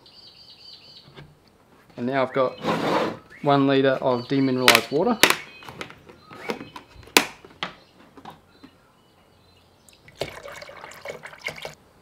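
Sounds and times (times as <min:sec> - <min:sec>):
water pouring into plastic jug: 0:10.0 - 0:11.8.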